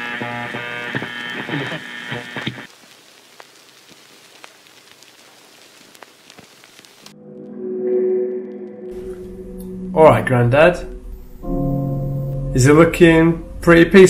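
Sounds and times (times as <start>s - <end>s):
filtered buzzy music: 0.0s - 2.7s, 7.1s - 14.0s
faint hiss with crackles: 0.0s - 7.6s
music with low sustained notes: 7.1s - 14.0s.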